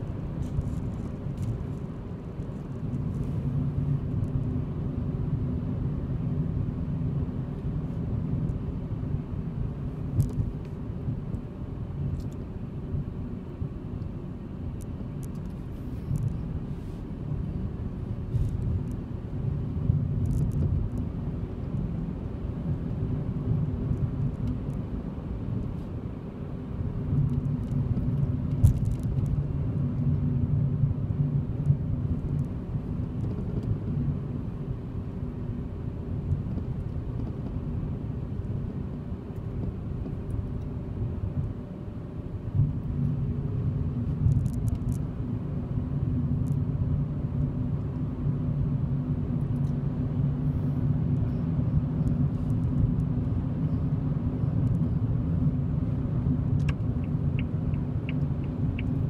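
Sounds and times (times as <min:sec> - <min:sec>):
car engine and tyre rumble: 0:00.0 - 0:59.0
faint light ticks: 0:56.5 - 0:59.0.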